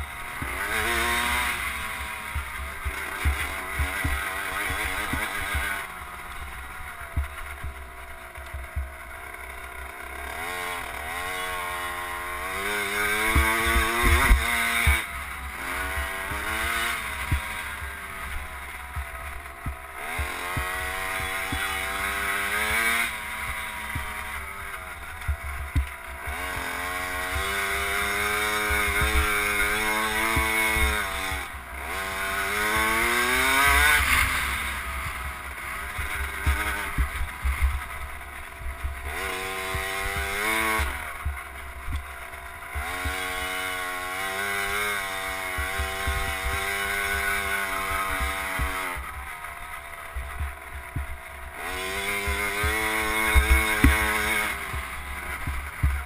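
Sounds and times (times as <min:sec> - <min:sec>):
two-stroke motorbike engine revving: 0:00.0 - 0:56.0
knocks from rough track: 0:13.1 - 0:15.1, 0:15.9 - 0:21.8, 0:25.0 - 0:31.5, 0:32.6 - 0:49.3, 0:50.1 - 0:56.0.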